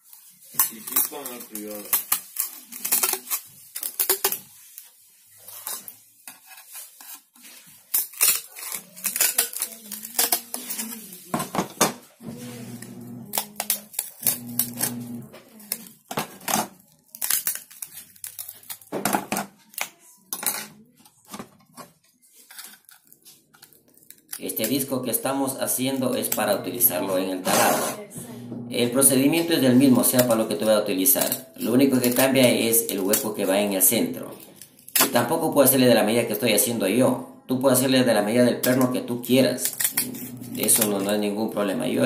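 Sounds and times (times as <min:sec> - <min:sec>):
tin snips cutting abrasive disc: 0:12.8 - 0:15.2.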